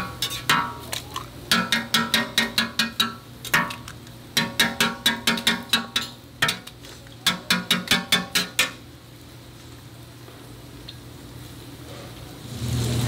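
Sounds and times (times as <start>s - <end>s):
metal utensils clattering on cookware: 0.0s - 8.8s
steady low hiss: 0.0s - 13.0s.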